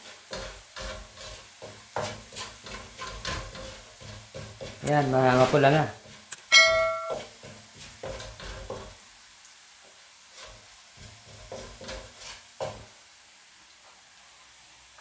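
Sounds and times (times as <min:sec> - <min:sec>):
spatula tapping pan: 0:00.0 - 0:09.0, 0:10.4 - 0:12.9
wooden spatula scraping wok: 0:00.0 - 0:09.1, 0:09.8 - 0:13.0
garlic sizzling in oil: 0:00.0 - 0:15.0
bright ringing chime: 0:06.5 - 0:07.2.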